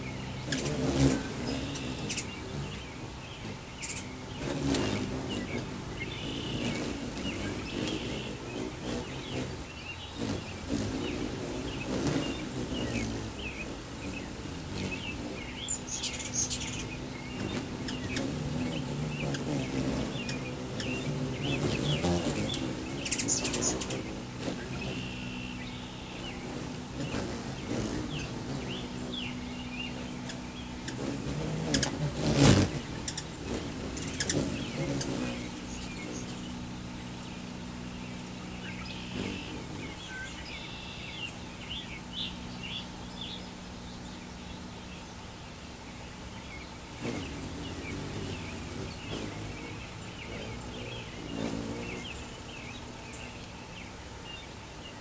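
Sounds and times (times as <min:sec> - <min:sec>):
hummingbird wings buzzing: 0:00.0 - 0:55.0
hummingbirds chirping: 0:00.0 - 0:55.0.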